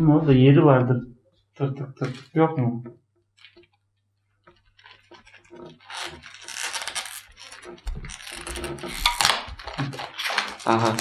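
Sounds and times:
cardboard and plastic rustling: 2.0s - 2.4s, 4.5s - 11.0s.

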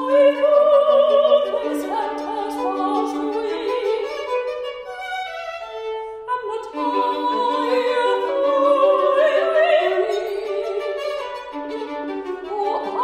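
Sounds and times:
woman singing with vibrato: 0.0s - 4.3s, 6.3s - 11.5s, 12.2s - 13.0s
violin bowed notes: 0.0s - 13.0s.

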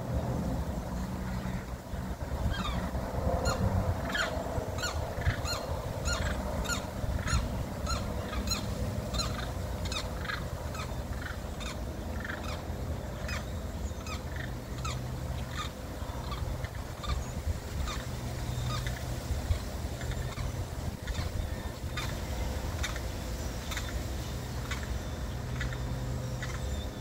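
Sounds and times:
limpkins calling: 2.4s - 27.0s.

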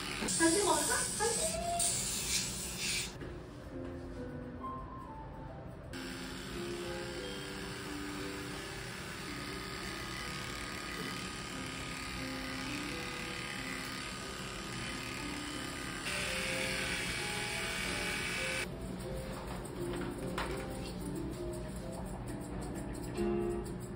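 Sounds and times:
electric pet clipper buzzing: 0.0s - 3.2s, 6.0s - 18.7s
background music: 3.3s - 23.9s.

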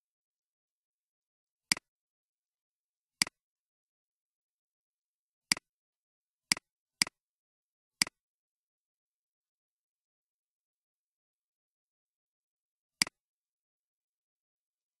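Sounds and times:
computer mouse clicks: 1.7s - 1.9s.

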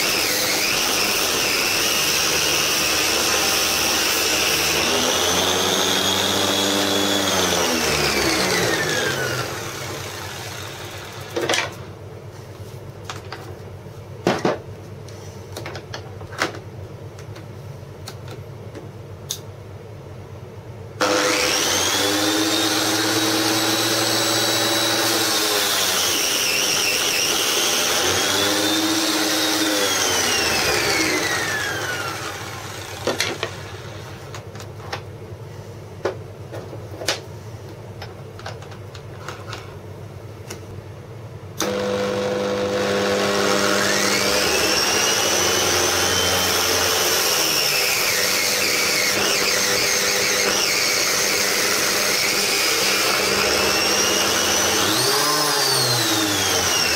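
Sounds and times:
spindle sander whining: 0.0s - 11.9s, 21.0s - 34.5s, 41.6s - 56.9s.

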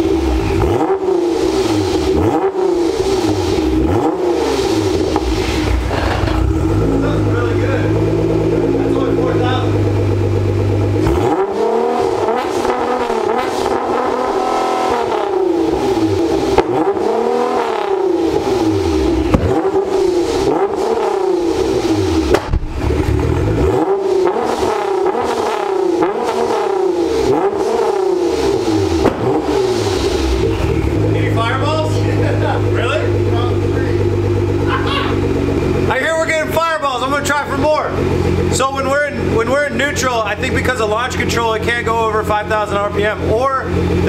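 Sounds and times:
car engine revving: 0.0s - 44.0s
exhaust pops: 3.4s - 10.0s, 19.1s - 21.1s, 22.2s - 23.8s, 28.8s - 36.4s.

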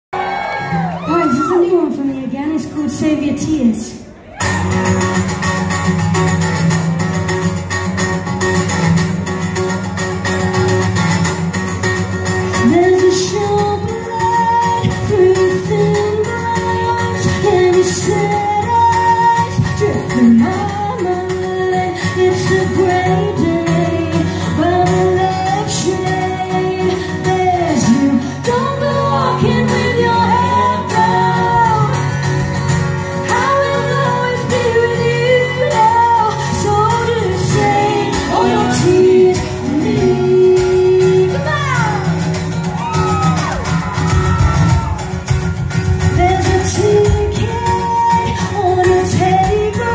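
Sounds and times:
strummed acoustic guitars: 4.4s - 49.9s
woman singing backing vocals: 12.6s - 32.2s, 33.2s - 42.1s, 46.1s - 49.9s
woman singing lead vocal: 12.6s - 32.4s, 33.0s - 42.2s, 46.0s - 49.9s.

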